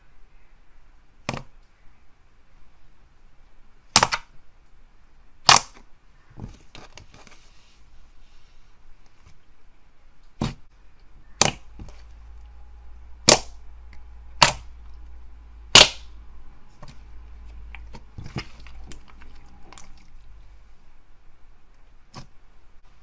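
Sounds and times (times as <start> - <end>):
slime air pockets popping: 13.2 - 13.6, 14.3 - 14.7.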